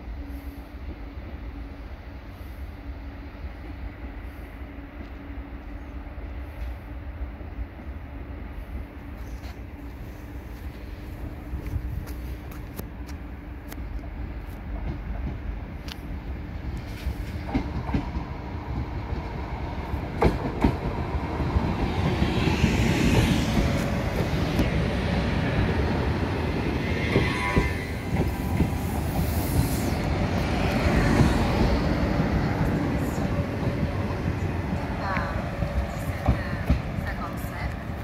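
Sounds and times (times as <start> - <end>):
train rumble: 0.0 - 38.0
train wheels clacking: 16.8 - 19.2, 26.6 - 33.3, 34.7 - 37.9.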